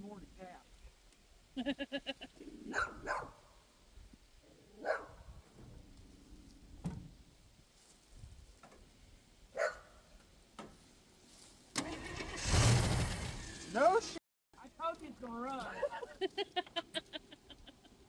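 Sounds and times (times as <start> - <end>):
dog barking: 2.7 - 3.4, 4.8 - 5.2, 9.6 - 10.0.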